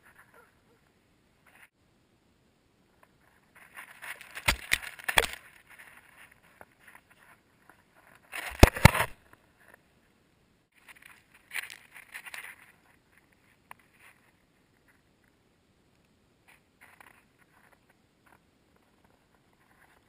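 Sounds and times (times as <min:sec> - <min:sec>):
paws crunching through snow: 0:03.5 - 0:08.9.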